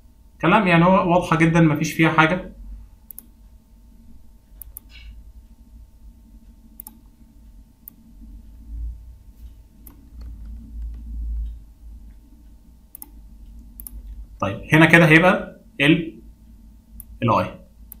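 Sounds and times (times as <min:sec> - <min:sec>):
faint steady hum: 0:00.0 - 0:18.0
low background rumble: 0:00.0 - 0:18.0
computer mouse clicks: 0:03.1 - 0:03.3, 0:04.6 - 0:05.2, 0:06.8 - 0:07.1, 0:09.4 - 0:12.2, 0:12.9 - 0:14.2, 0:17.0 - 0:17.2.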